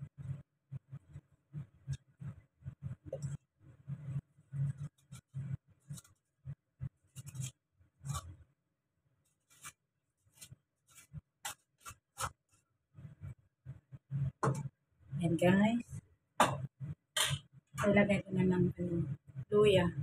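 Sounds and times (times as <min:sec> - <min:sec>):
scraping a coconut by hand: 0:04.6 - 0:08.4, 0:09.3 - 0:12.6.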